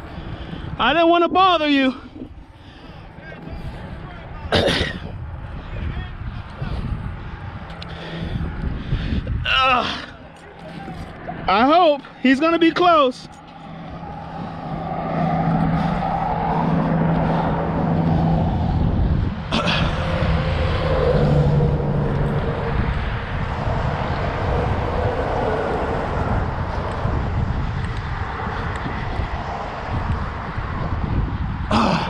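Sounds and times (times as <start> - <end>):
road traffic drone: 0.0 - 32.0
low hum: 13.2 - 28.7.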